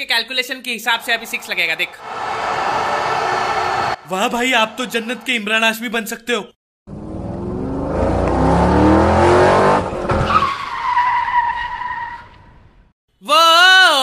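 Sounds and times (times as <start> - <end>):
tire squeal: 9.8 - 12.6.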